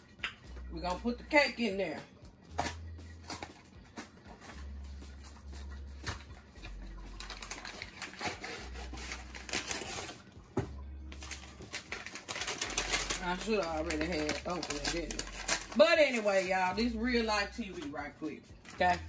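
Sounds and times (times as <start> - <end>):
packaging crinkling and tearing: 6.0 - 10.3, 11.1 - 16.7.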